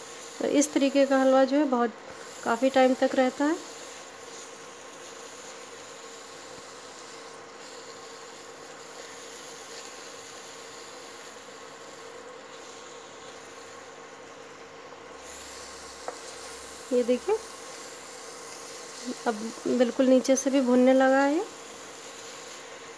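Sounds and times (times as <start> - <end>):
food sizzling in a pan: 0.0 - 22.9.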